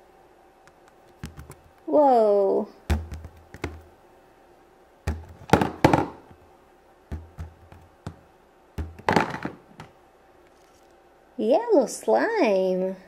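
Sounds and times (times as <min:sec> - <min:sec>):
plastic toys knocking on table: 0:02.9 - 0:03.9, 0:05.1 - 0:06.4, 0:07.1 - 0:08.2, 0:08.8 - 0:09.9.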